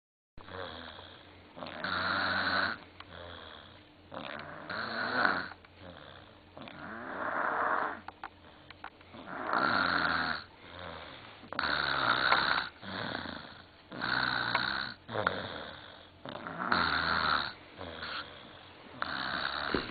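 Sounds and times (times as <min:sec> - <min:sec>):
child snoring: 0:00.5 - 0:08.1, 0:09.1 - 0:19.9
quiet breathing: 0:10.4 - 0:11.9, 0:17.5 - 0:19.9.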